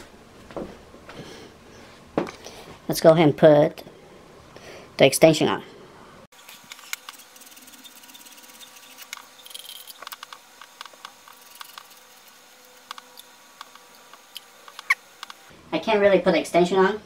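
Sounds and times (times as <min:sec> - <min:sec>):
small clicks and ticks: 0:06.7 - 0:12.0.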